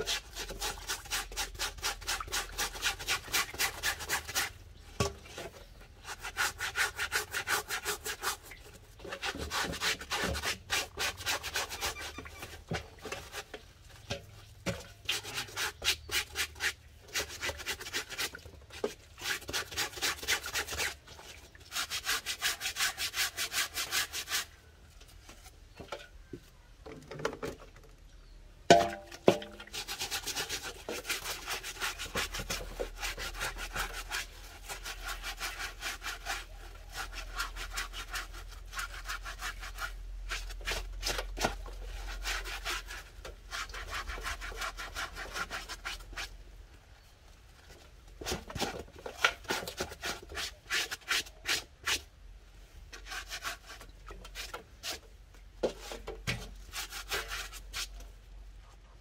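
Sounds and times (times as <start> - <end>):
rapid scraping strokes: 6.0 - 13.5.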